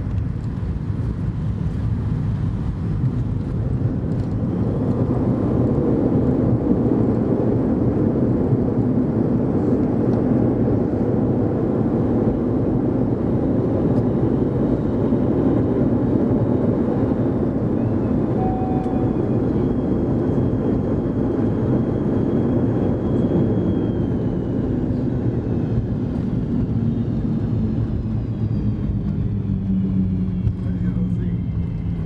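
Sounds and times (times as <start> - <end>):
jet engine cabin rumble: 0.0 - 32.0
high whine dropping in pitch: 17.1 - 32.0.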